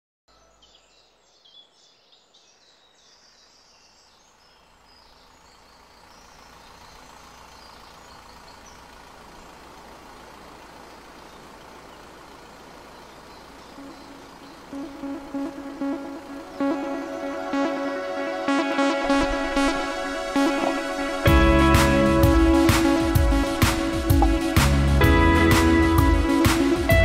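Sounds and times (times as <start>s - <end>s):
birds chirping: 0.3s - 27.0s
wind rushing: 19.0s - 24.8s.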